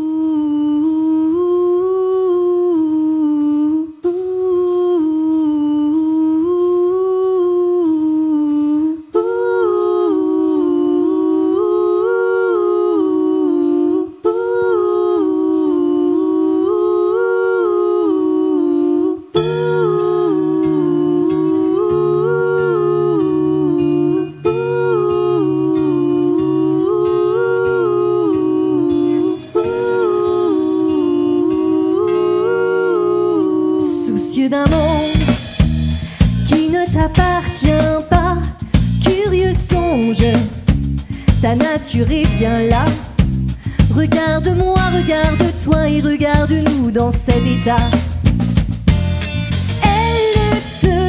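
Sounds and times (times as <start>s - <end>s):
woman singing wordless melody: 0.0s - 48.0s, 49.8s - 51.0s
low sustained notes: 15.6s - 33.8s
singer breathing: 35.9s - 36.4s, 38.6s - 39.0s, 41.0s - 41.4s, 43.4s - 43.9s.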